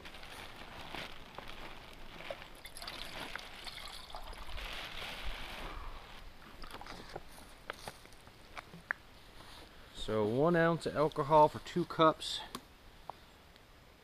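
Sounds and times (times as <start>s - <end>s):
water pouring into a pot: 2.6s - 4.6s.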